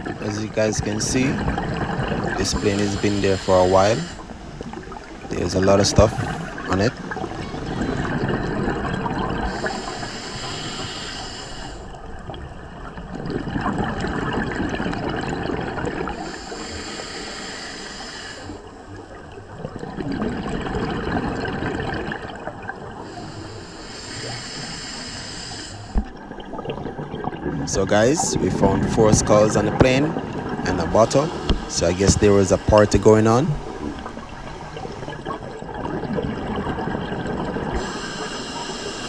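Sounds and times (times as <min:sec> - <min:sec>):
exhaled bubbles rushing: 0:00.0 - 0:10.0, 0:12.0 - 0:16.4, 0:19.0 - 0:23.2, 0:25.9 - 0:38.4
hissing regulator inhale: 0:02.4 - 0:04.4, 0:09.4 - 0:12.0, 0:16.2 - 0:18.7, 0:23.0 - 0:26.0, 0:31.2 - 0:32.5, 0:37.8 - 0:39.0.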